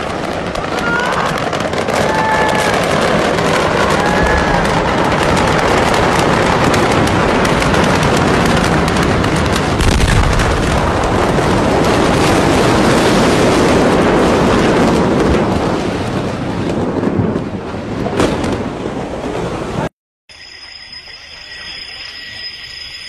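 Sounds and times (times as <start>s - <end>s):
fireworks crackling pops: 0.0s - 18.7s
explosion deep boom: 1.5s - 19.8s.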